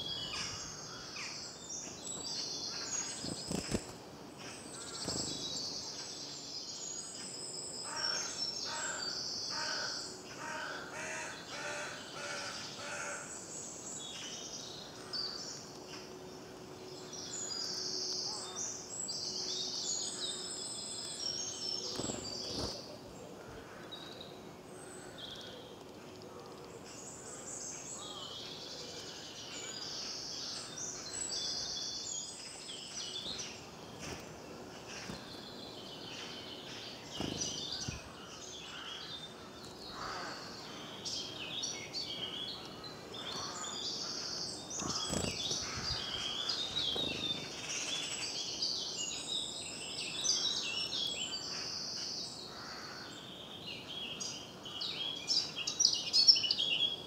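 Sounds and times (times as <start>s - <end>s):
songbirds chirping and trilling: 0.0s - 57.0s
sharp bird calls: 34.8s - 48.8s.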